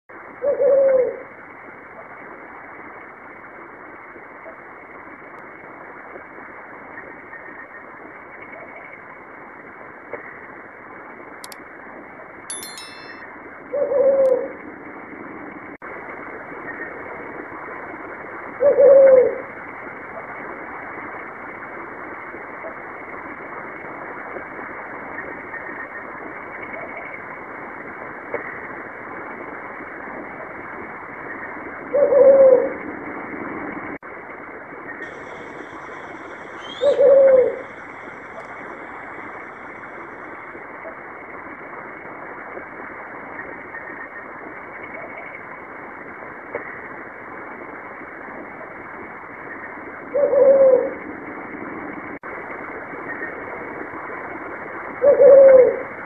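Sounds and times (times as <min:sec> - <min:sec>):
owl deep hoots: 0:00.4 - 0:01.3, 0:18.6 - 0:19.5, 0:31.9 - 0:32.8, 0:35.1 - 0:38.5, 0:50.1 - 0:51.0, 0:55.0 - 0:56.0
steady background hiss: 0:34.0 - 0:56.0.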